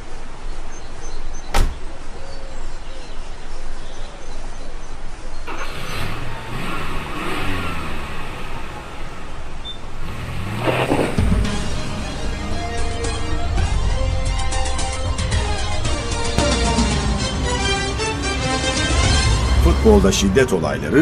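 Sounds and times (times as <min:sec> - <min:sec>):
car door shutting: 0:01.5 - 0:01.9, 0:10.4 - 0:11.7
car engine revving: 0:05.5 - 0:21.0.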